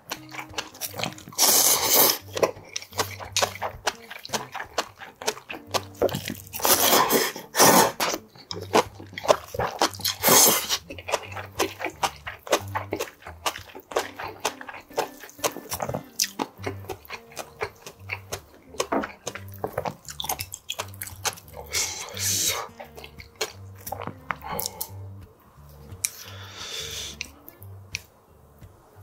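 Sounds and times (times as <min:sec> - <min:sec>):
wet chewing sounds: 0:00.0 - 0:28.8
man slurping noodles: 0:01.3 - 0:05.4, 0:06.1 - 0:14.5, 0:21.5 - 0:23.0, 0:26.1 - 0:27.3.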